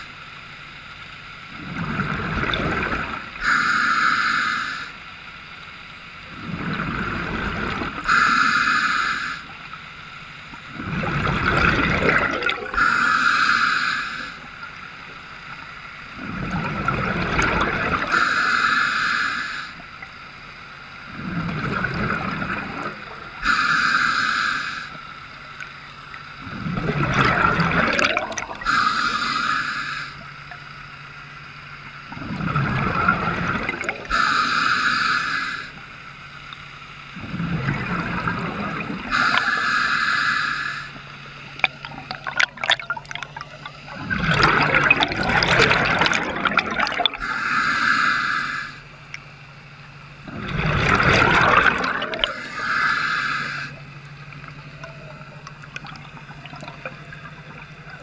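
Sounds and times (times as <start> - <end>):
exhaust bubbles gurgling: 1.5 - 3.7, 6.2 - 9.8, 10.5 - 18.8, 21.0 - 25.0, 25.6 - 30.7, 32.0 - 36.0, 37.1 - 49.3, 49.9 - 58.0
regulator inhale hiss: 3.4 - 5.0, 8.1 - 9.6, 12.8 - 14.5, 18.1 - 20.0, 23.4 - 25.1, 28.6 - 30.3, 34.1 - 35.9, 39.1 - 41.1, 47.2 - 49.0, 52.2 - 53.8.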